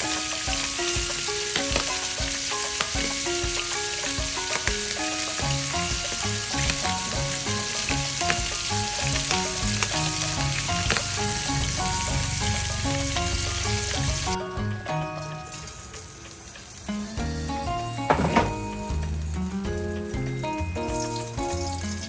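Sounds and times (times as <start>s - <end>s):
fish sizzling in oil: 0.0s - 14.4s, 15.2s - 22.0s
spattering oil pops: 1.5s - 2.0s, 5.4s - 11.3s.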